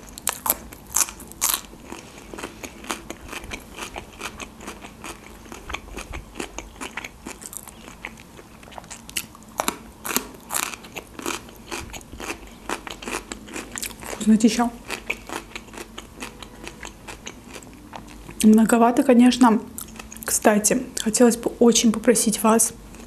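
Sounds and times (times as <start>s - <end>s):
cucumber being bitten and chewed: 0.0s - 14.2s, 14.8s - 18.4s.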